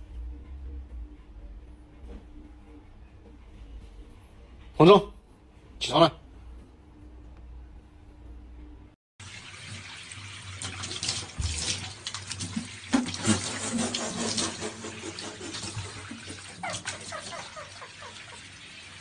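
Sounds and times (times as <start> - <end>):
water running from bathtub tap: 9.2 - 19.0.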